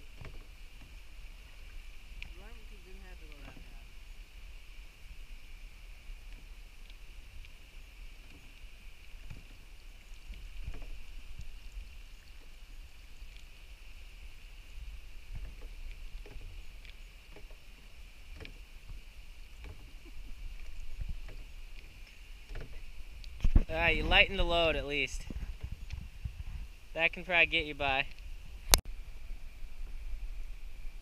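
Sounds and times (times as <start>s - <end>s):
paddle splashes and drips: 0.0s - 31.0s
low steady rumble: 28.0s - 31.0s.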